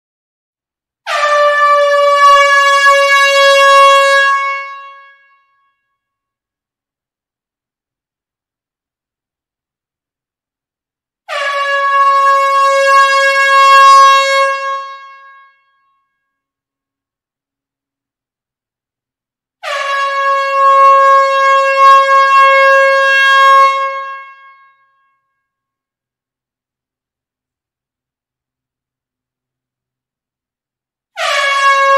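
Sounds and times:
air horn blast: 1.0s - 5.6s, 11.3s - 15.7s, 19.6s - 24.8s, 31.1s - 31.9s.

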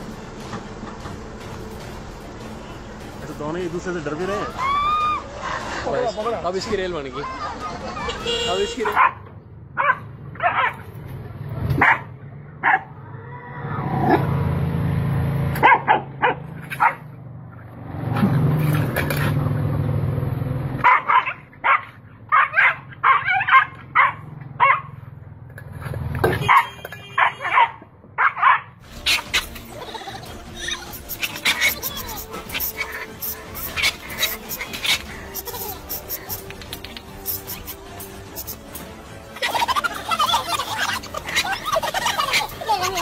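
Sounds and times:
dog barking: 8.8s - 10.8s, 11.8s - 12.9s, 15.6s - 17.1s, 20.8s - 25.0s, 26.4s - 29.5s.

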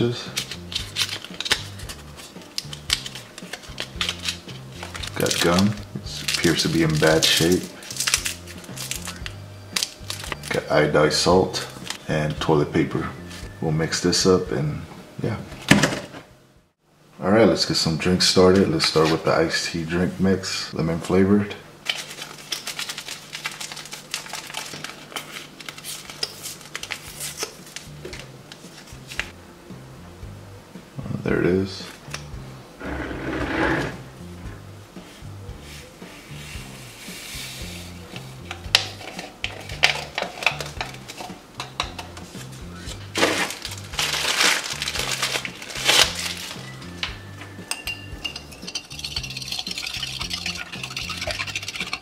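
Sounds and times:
background music with bass line: 0.0s - 15.7s, 27.9s - 52.0s
foil packet crinkling and tearing: 0.3s - 10.6s, 21.8s - 27.9s, 43.1s - 46.7s
rustling: 42.2s - 46.7s
glass jar and lid clinking: 47.0s - 52.0s.

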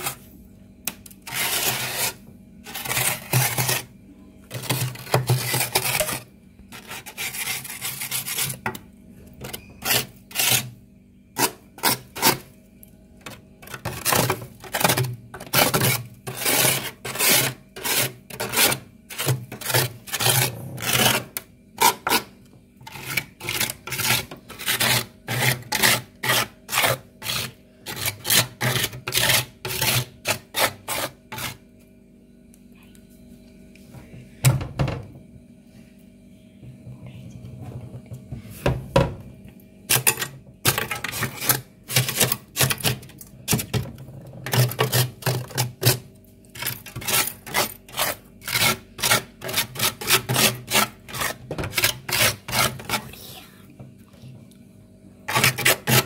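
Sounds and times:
ice scraping in freezer: 0.0s - 0.3s, 1.0s - 3.9s, 4.5s - 8.8s, 9.4s - 10.8s, 11.4s - 12.6s, 13.2s - 31.6s, 39.9s - 53.6s, 55.3s - 56.0s.

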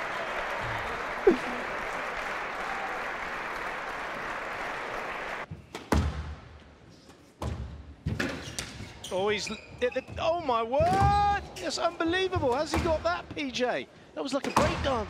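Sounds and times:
crowd applauding and cheering: 0.0s - 5.5s.

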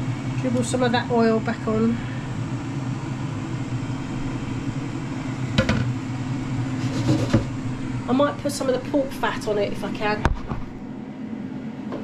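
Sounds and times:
air fryer fan humming: 0.0s - 12.0s
bowl knocking on worktop: 5.6s - 5.9s.

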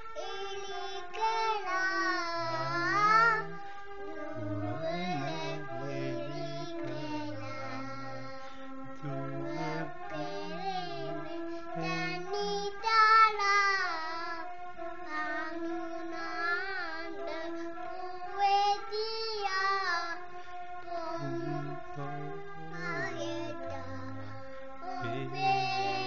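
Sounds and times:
backing track of held tones: 0.0s - 14.0s, 20.9s - 26.0s
girl singing into microphone: 0.1s - 3.6s, 4.4s - 8.6s, 9.4s - 26.0s.

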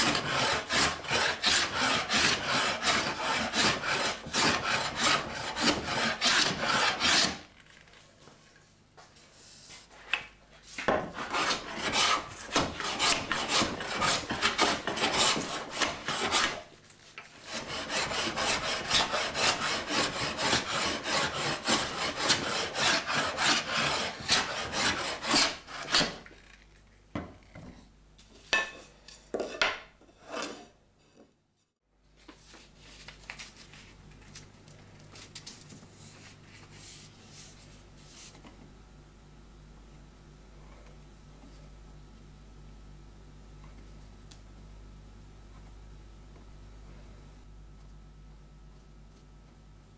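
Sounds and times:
plane shaving wooden board: 0.0s - 7.4s, 10.8s - 16.7s, 17.4s - 26.2s.

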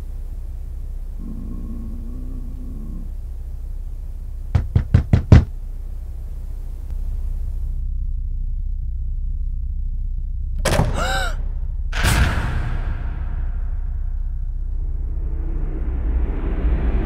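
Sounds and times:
low rumble: 0.0s - 4.6s, 5.5s - 17.0s
knocks on a door: 4.5s - 5.5s.

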